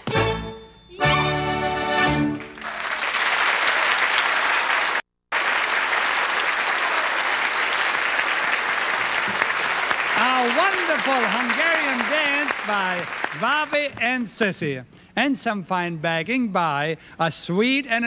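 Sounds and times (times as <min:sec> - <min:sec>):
audience applause: 0:02.3 - 0:14.0.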